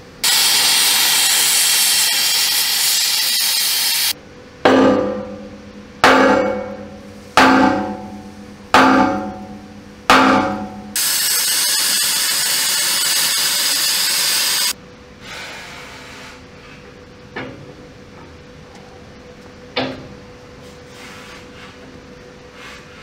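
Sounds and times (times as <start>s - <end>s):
gas cutting torch hissing: 0.2s - 4.2s, 11.0s - 14.8s
hammer blows on steel plate: 4.7s - 12.1s.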